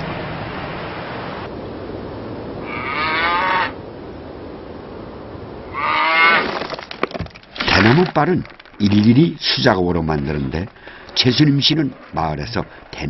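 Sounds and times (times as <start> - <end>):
cow mooing: 2.6 - 3.8, 5.7 - 6.4.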